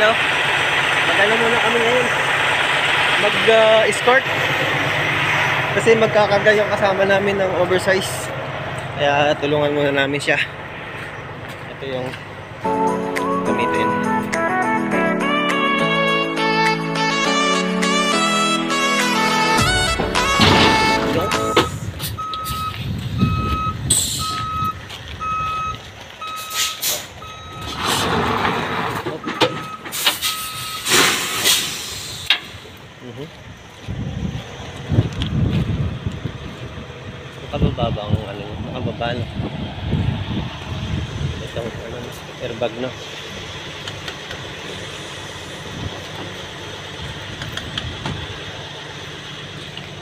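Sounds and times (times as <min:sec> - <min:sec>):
low engine rumble: 0:00.0 - 0:15.4, 0:17.3 - 0:50.0
backup alarm beeping: 0:19.5 - 0:27.9, 0:29.2 - 0:30.9
loud hiss bursts: 0:29.9 - 0:32.6.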